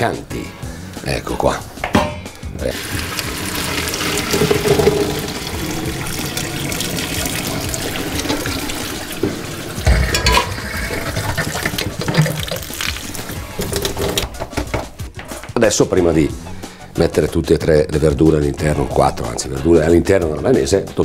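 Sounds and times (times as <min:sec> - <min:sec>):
knock: 0:01.8 - 0:02.3
water pouring into a colander: 0:02.6 - 0:14.2.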